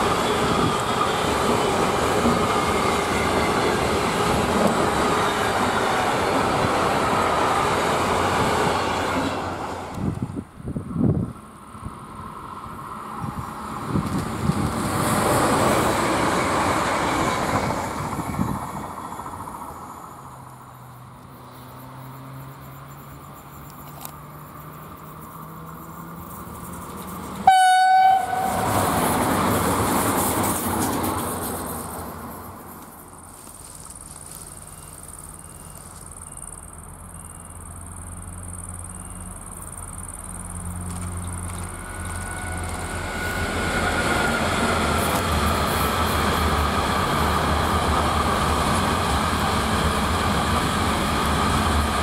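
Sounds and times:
electric locomotive hum: 0.0 - 52.0
passenger trains passing: 0.0 - 52.0
train horn blast: 27.4 - 29.0, 42.1 - 43.6.

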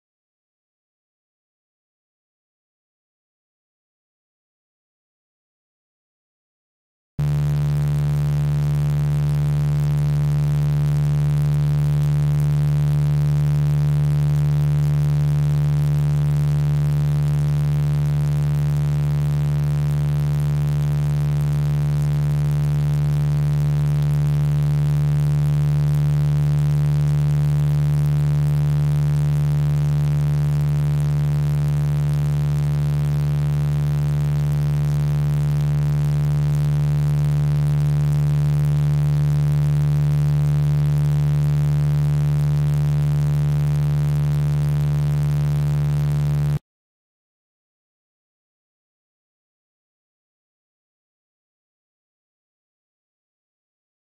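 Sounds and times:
synthesized low humming tones: 7.2 - 46.6.

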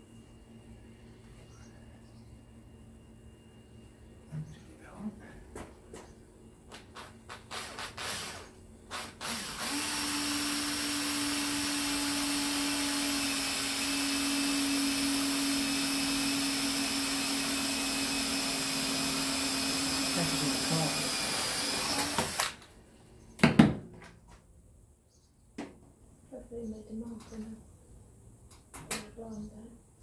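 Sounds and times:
cordless drill running: 7.0 - 22.7.

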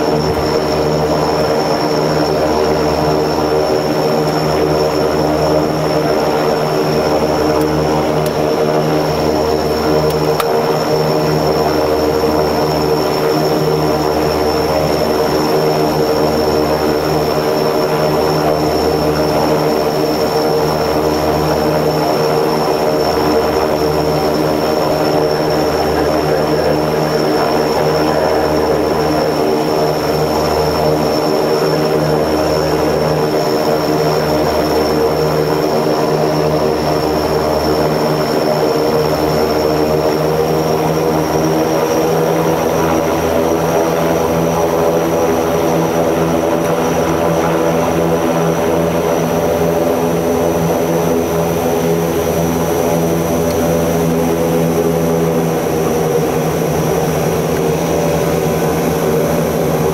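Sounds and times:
high turbine whine: 0.0 - 59.9
propeller drone inside cabin: 0.0 - 59.9.

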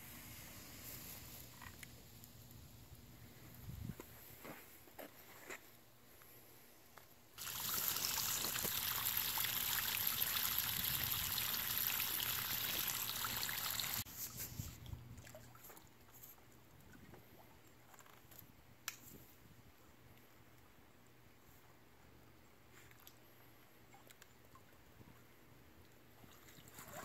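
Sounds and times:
water gushing onto grass: 7.4 - 14.0.

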